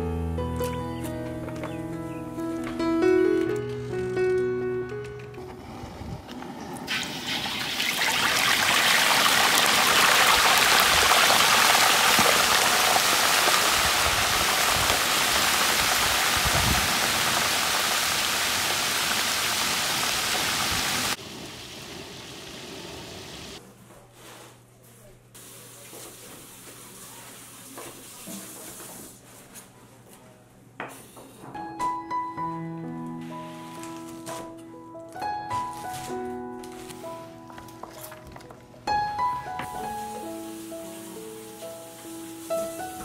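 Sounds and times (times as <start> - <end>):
fish deep-frying sizzling: 6.9 - 23.6, 39.4 - 43.0.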